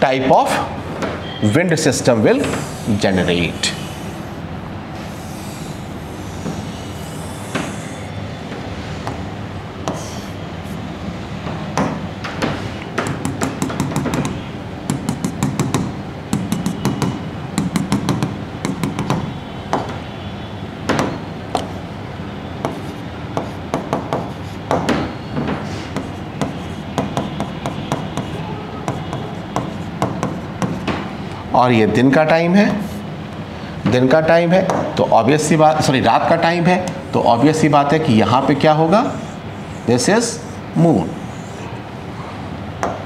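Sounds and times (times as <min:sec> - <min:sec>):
marker writing strokes: 0:02.0 - 0:10.9, 0:11.8 - 0:19.8, 0:21.0 - 0:21.9, 0:22.6 - 0:25.0, 0:25.6 - 0:31.1, 0:32.2 - 0:33.1
marker tapping on whiteboard: 0:05.1 - 0:09.2, 0:09.8 - 0:10.3, 0:11.5 - 0:20.0, 0:20.9 - 0:21.8, 0:22.6 - 0:31.1, 0:34.6 - 0:34.9, 0:42.8 - 0:43.0.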